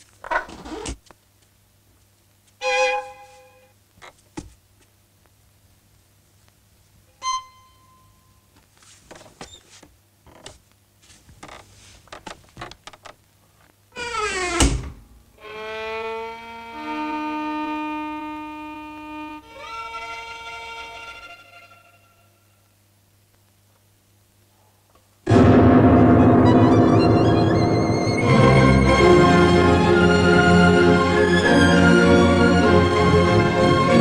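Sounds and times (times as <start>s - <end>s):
heavy thud: 25.3s - 29.1s
bowed string film score: 25.3s - 34.0s.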